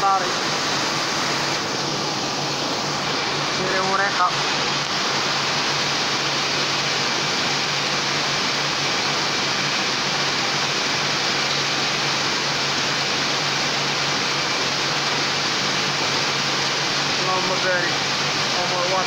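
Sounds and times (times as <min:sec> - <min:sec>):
faint high whine: 0:00.0 - 0:06.8.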